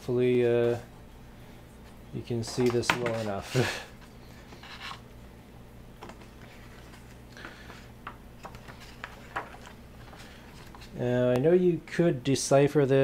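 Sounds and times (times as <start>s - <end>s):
low steady hum: 0.0s - 13.0s
soft paper rustle: 2.4s - 5.0s, 6.0s - 11.1s.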